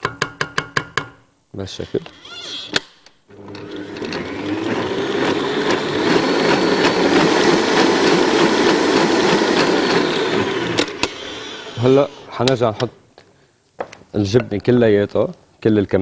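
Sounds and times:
electric stand mixer whisking: 3.3s - 12.4s
mixer ticking: 3.5s - 11.8s.

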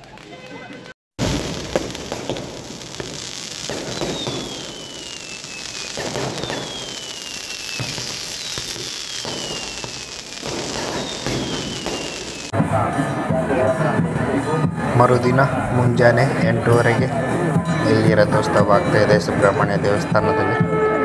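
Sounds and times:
fireworks crackling: 0.0s - 14.2s
falling firework whistle: 1.2s - 12.6s.

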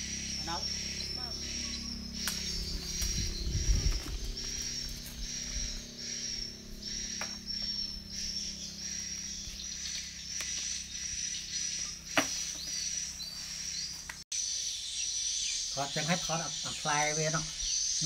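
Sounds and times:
faint low hum: 0.0s - 12.2s
insects chirping: 0.0s - 18.0s.

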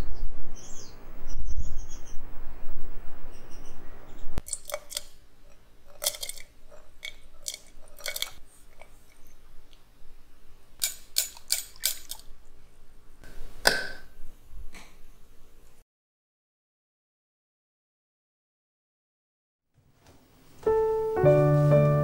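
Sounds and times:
faint outdoor ambience: 0.0s - 15.8s
spoon clicking on glass jar: 10.8s - 12.2s.

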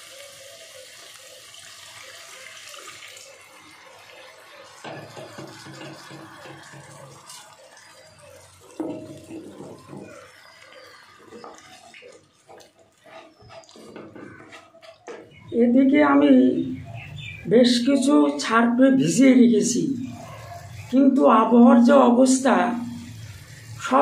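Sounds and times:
water hissing in hot oil: 0.0s - 14.4s, 19.6s - 24.0s
wooden spatula scraping pan: 11.4s - 15.4s.

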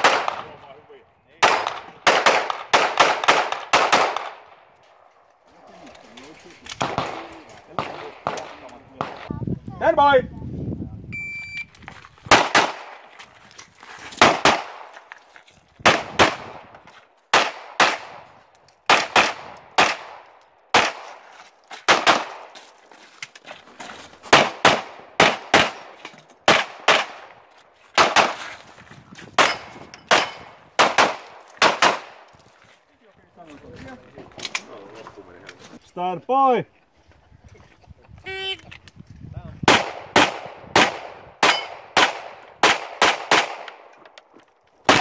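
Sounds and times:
pistol shots: 0.0s - 0.7s, 1.4s - 4.6s, 6.8s - 9.3s, 12.3s - 13.0s, 14.2s - 14.9s, 15.8s - 16.7s, 17.3s - 18.3s, 18.9s - 21.3s, 21.9s - 22.6s, 24.3s - 27.4s, 28.0s - 28.4s, 29.4s - 32.3s, 39.6s - 43.9s
shot timer beep: 11.1s - 11.7s.

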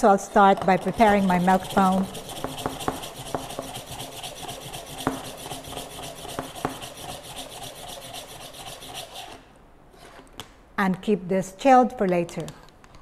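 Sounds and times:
milk frother plunger pumping: 0.2s - 9.4s.

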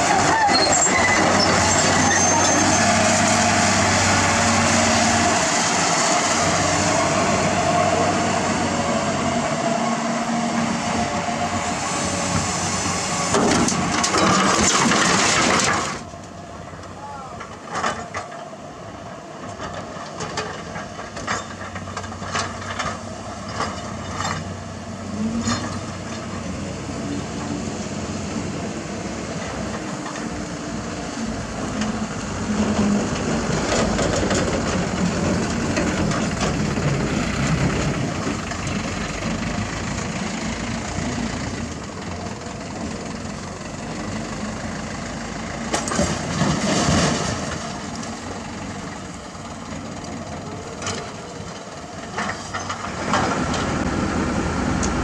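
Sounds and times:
heavy diesel engines running: 0.0s - 55.0s
broken asphalt clattering: 12.3s - 18.5s.

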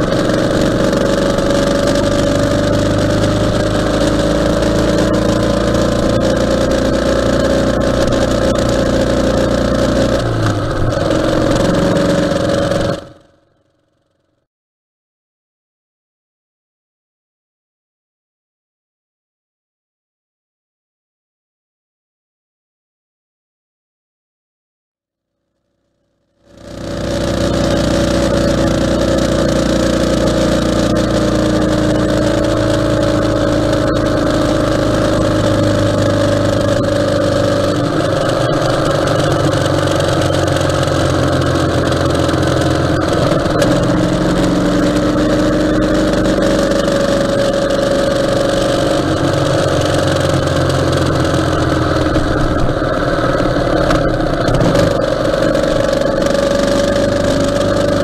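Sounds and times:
wind and road noise: 0.0s - 13.3s, 26.6s - 58.0s
motorcycle engine running: 0.0s - 14.4s, 26.2s - 58.0s.

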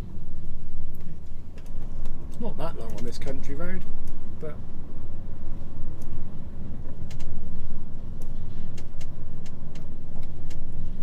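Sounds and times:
diesel engine rumble: 0.0s - 11.0s
road noise: 0.0s - 11.0s
sharp clicks: 7.0s - 7.4s.

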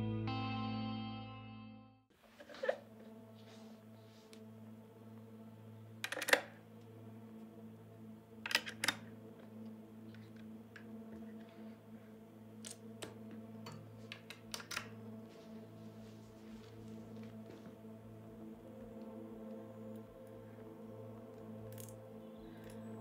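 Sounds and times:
jack plugs clicking into sockets: 12.6s - 14.9s.

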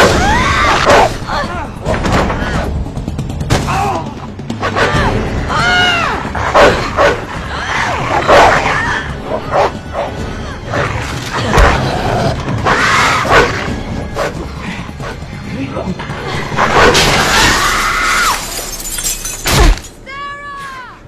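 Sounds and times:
dog barking and snarling: 0.7s - 1.2s, 6.3s - 7.4s, 8.1s - 8.8s, 11.5s - 14.4s.

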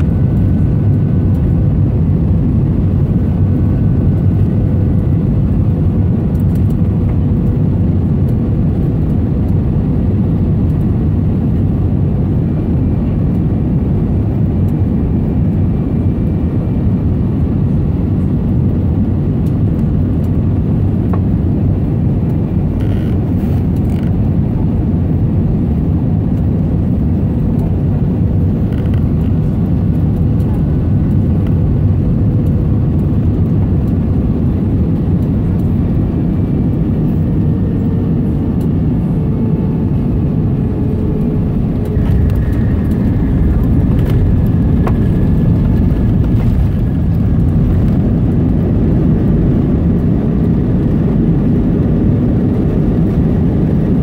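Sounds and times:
aircraft engines rumbling: 0.0s - 54.0s
faint whine: 26.4s - 54.0s
rushing air: 39.7s - 49.5s.

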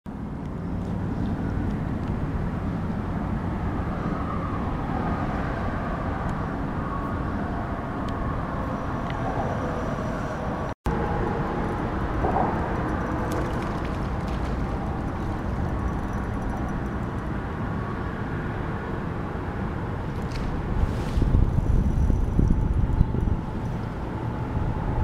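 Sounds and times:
low rumble of highway traffic: 0.1s - 25.0s.

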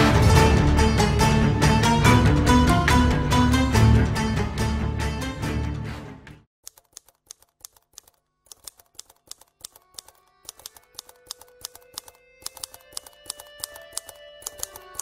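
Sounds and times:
rapid irregular clicks: 6.6s - 15.0s.

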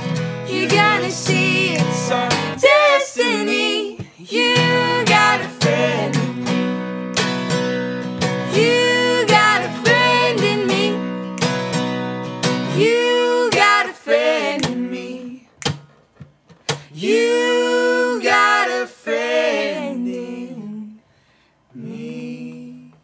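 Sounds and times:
acoustic guitar: 0.0s - 23.0s
person singing: 0.5s - 6.6s, 8.5s - 11.0s.

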